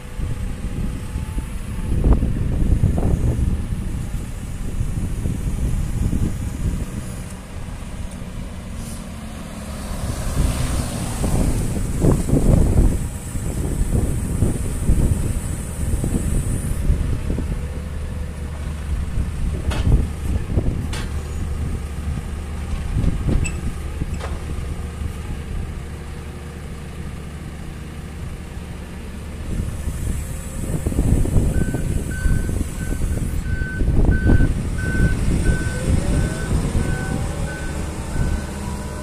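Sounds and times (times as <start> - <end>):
diesel engine running: 0.0 - 39.0
reversing alarm beeping: 31.5 - 39.0.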